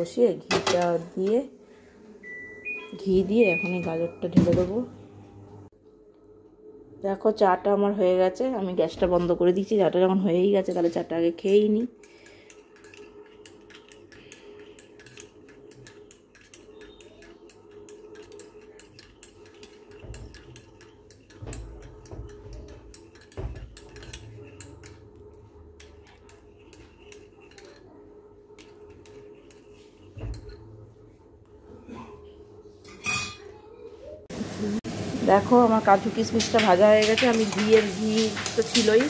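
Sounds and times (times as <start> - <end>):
teaspoon clinking in ceramic cup: 12.1 - 25.0.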